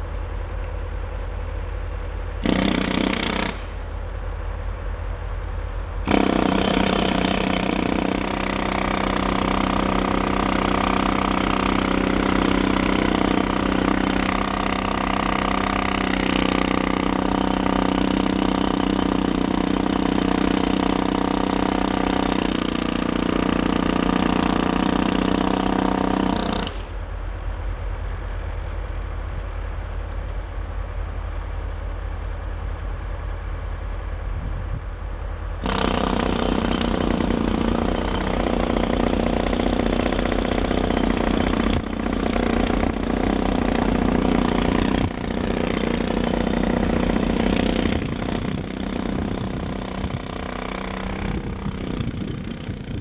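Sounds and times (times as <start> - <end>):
jackhammer chipping brick: 2.4 - 3.8, 6.0 - 26.9, 35.6 - 53.0.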